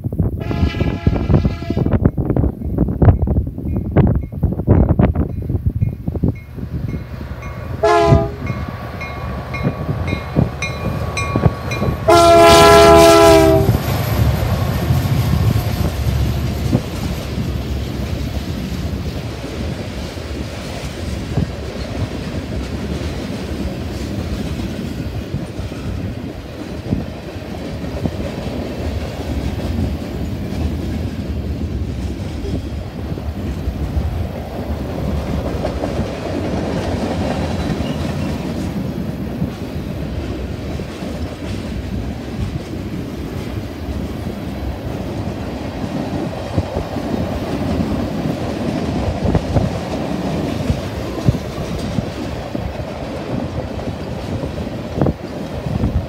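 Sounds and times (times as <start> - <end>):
locomotive air horn blasts: 0.4 - 2.0, 7.8 - 8.6, 11.7 - 13.8
freight cars rumbling and clattering: 13.6 - 56.0.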